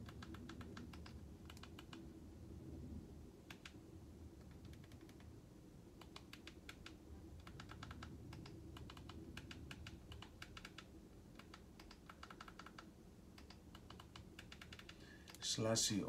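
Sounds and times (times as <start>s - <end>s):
remote control buttons clicking: 6.0s - 15.4s.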